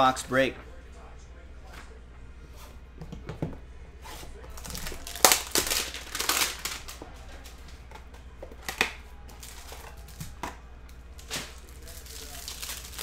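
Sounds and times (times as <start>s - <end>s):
cards rustling and clicking: 4.2s - 13.0s.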